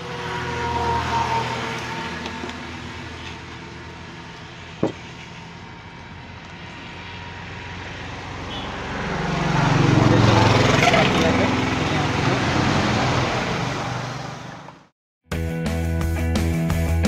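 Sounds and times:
passing motor vehicle hum: 0.0s - 14.9s
sharp knock: 4.8s - 5.0s.

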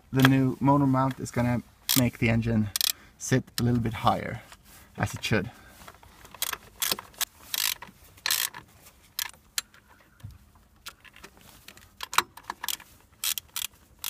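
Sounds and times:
ratchet wrench clicking: 2.7s - 3.0s, 6.4s - 8.6s, 9.2s - 9.7s, 12.0s - 13.8s.

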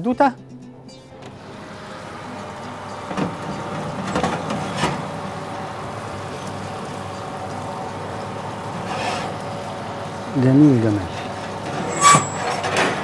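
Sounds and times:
steady hum: 0.9s - 13.0s
metal knocks and clatters: 3.0s - 5.1s, 11.1s - 13.0s.

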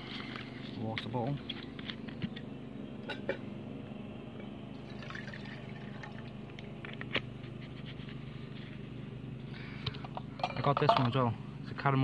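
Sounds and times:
camping stove low drone: 0.0s - 12.0s.

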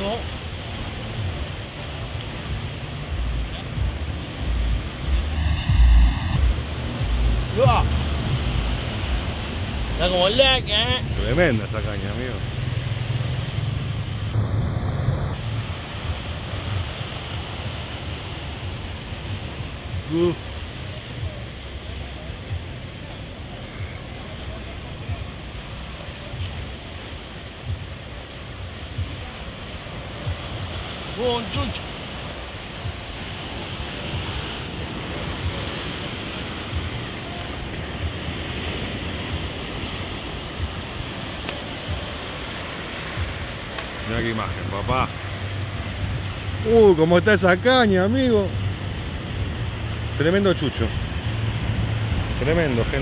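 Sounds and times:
wind rumbling on microphone: 0.0s - 10.1s, 12.4s - 31.1s, 48.3s - 53.0s
surf breaking over rocks: 0.0s - 53.0s.

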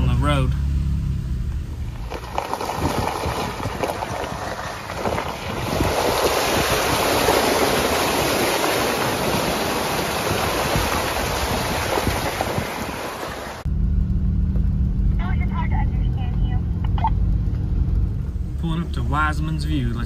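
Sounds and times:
vehicle road noise on gravel: 0.0s - 20.0s
rushing wind: 1.8s - 13.7s.

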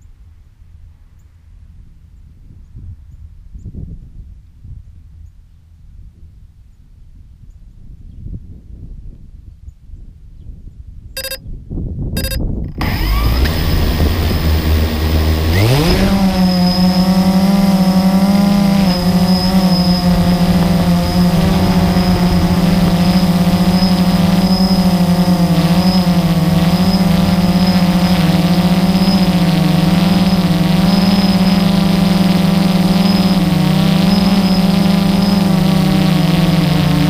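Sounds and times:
quadcopter propellers buzzing: 11.2s - 11.4s, 12.2s - 37.0s
short beeps: 11.2s - 11.4s, 12.2s - 12.8s.

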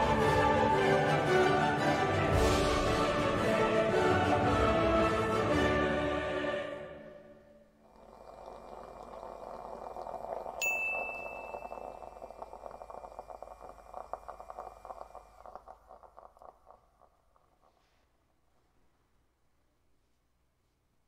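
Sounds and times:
moka pot gurgling and sputtering: 0.0s - 3.0s, 7.8s - 18.0s
music: 0.0s - 7.8s
bright ringing ding: 10.6s - 12.0s.

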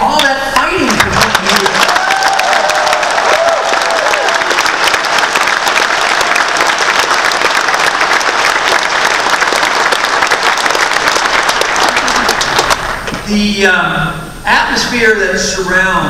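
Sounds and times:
audience applauding: 0.8s - 13.2s
hands clapping close to microphone: 0.9s - 13.2s.

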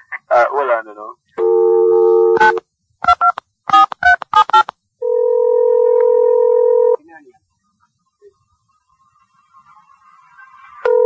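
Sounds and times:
dial tone: 1.4s - 2.6s, 5.0s - 7.0s
telephone ring tone: 1.4s - 2.6s, 3.2s - 7.0s.

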